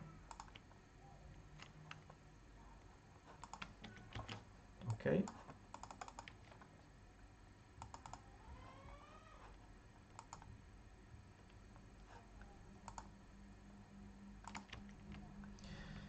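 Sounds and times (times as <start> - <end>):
keyboard and mouse clicks: 0.3 - 0.6, 3.3 - 6.7, 7.8 - 8.3, 10.1 - 10.5, 12.8 - 13.1, 14.4 - 15.2
faint rising hum: 6.3 - 16.0.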